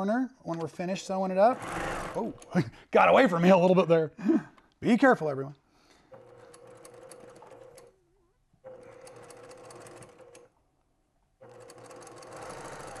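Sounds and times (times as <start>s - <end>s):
sewing machine stitching: 1.5s - 2.6s, 6.1s - 8.0s, 8.6s - 10.5s, 11.4s - 13.0s.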